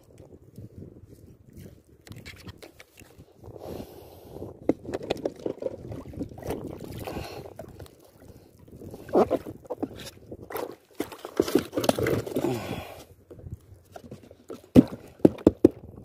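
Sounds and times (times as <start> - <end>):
water splashing against kayak hull: 4.4 - 13.0, 13.6 - 16.0
sharp knocks on kayak: 14.7 - 15.8.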